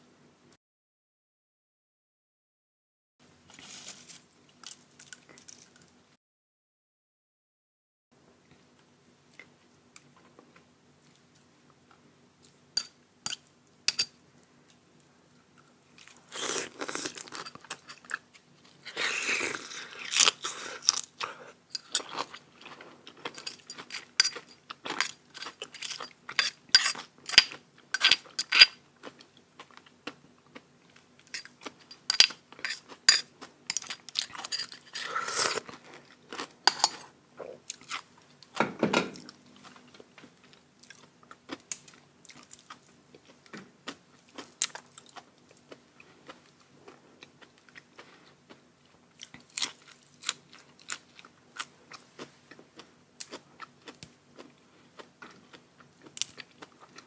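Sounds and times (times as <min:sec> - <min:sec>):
person chewing and crunching: 0:16.0 - 0:57.0.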